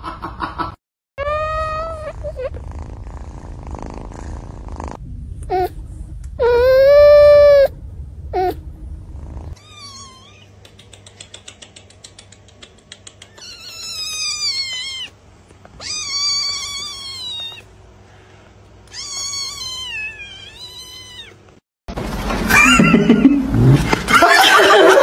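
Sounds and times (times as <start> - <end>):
kitten meowing: 9.6 - 10.6, 13.3 - 15.1, 15.8 - 17.7, 18.9 - 21.4.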